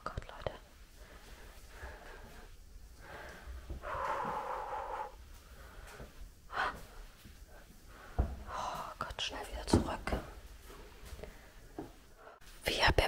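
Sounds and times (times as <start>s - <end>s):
person breathing heavily: 0.9s - 9.0s.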